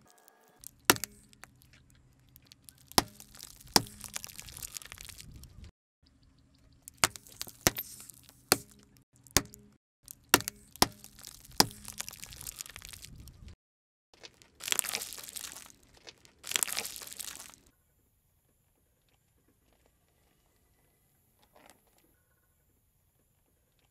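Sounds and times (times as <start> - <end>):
plastic capsules cracking: 0.6 - 5.3, 6.9 - 13.2, 14.2 - 17.7
crunching noise: 0.6 - 5.7, 6.8 - 13.6, 14.2 - 17.7.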